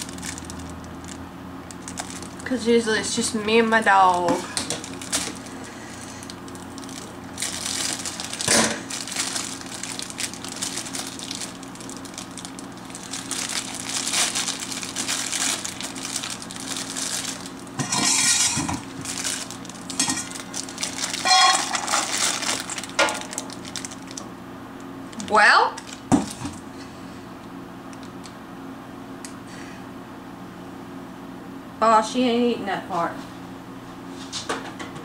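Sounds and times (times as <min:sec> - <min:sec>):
rustling and crinkling: 0:00.0 - 0:24.2, 0:25.1 - 0:26.7
steady low hum: 0:00.0 - 0:35.0.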